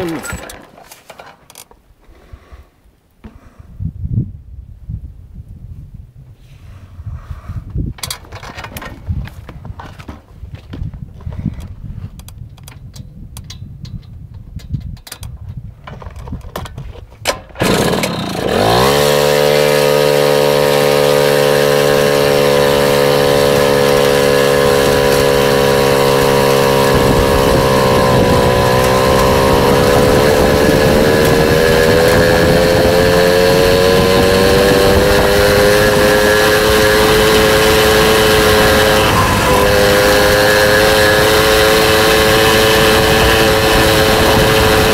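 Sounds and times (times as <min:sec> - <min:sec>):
motorbike engine revving: 0:17.6 - 0:44.9
rumbling noise: 0:22.0 - 0:44.9.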